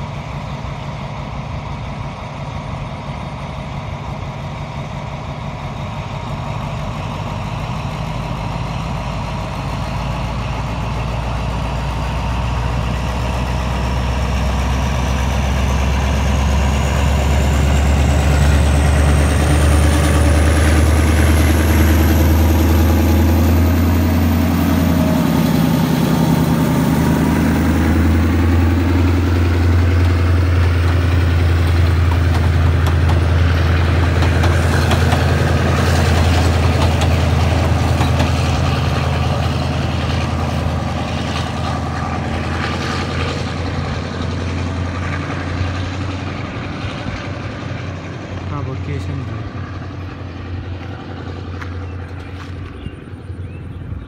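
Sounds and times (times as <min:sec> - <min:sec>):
diesel locomotive engine droning: 0:00.0 - 0:54.0
train coaches rolling past: 0:00.0 - 0:54.0
high whine rising in pitch: 0:14.0 - 0:44.8.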